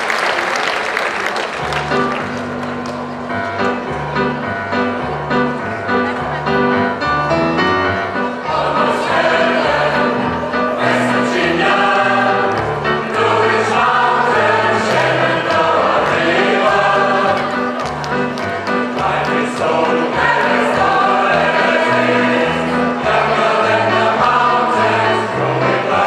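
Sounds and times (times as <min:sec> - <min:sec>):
amplified instrumental accompaniment: 0:01.6 - 0:26.0
choir singing: 0:08.2 - 0:26.0.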